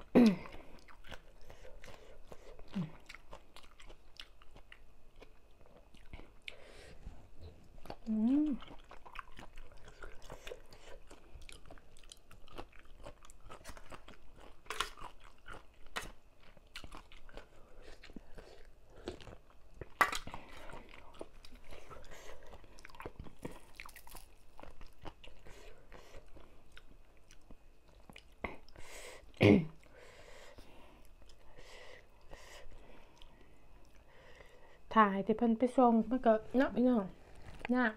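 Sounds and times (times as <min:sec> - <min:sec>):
wet chewing and crunching: 0:00.0 - 0:28.8.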